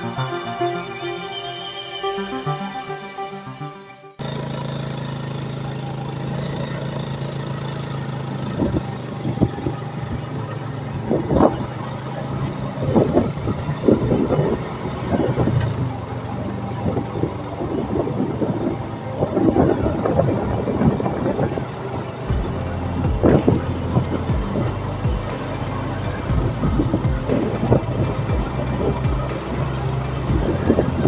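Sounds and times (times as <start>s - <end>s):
motorbike engine running: 4.2s - 31.0s
wind buffeting microphone: 12.8s - 24.6s.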